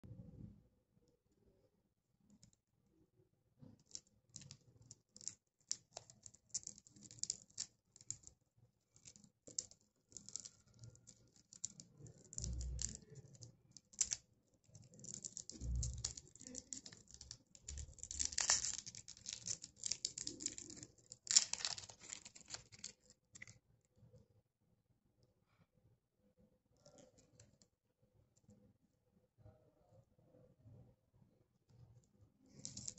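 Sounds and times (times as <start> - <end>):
plastic wrapper crinkling: 3.8 - 8.3, 8.9 - 14.2, 14.8 - 23.6, 32.5 - 32.9.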